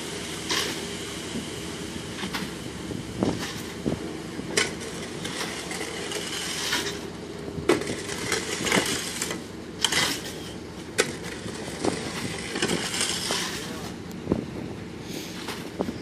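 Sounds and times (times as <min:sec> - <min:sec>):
concrete mixer truck running: 0:00.0 - 0:16.0
shovels scraping wet concrete: 0:00.4 - 0:00.9, 0:03.3 - 0:03.8, 0:04.6 - 0:14.0.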